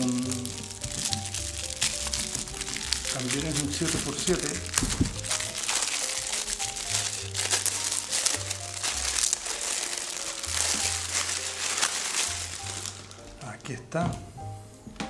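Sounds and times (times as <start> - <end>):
plastic wrapping crinkling: 0.0 - 14.1
background music with bass: 0.0 - 15.0.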